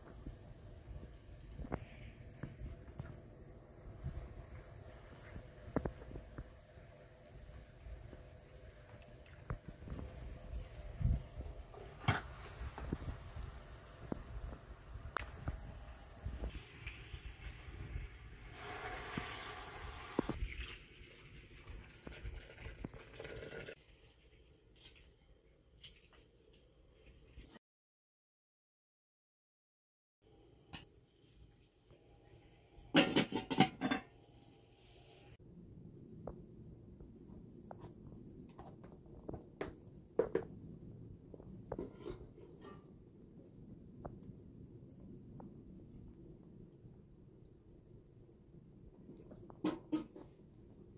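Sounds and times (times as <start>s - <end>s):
water pouring into a metal pot: 16.5s - 25.0s.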